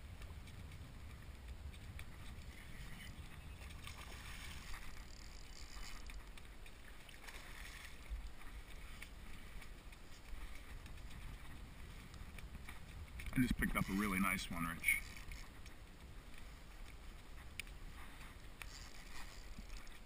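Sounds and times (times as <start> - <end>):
steady low rumble: 0.0 - 5.2
water splashing: 0.0 - 20.0.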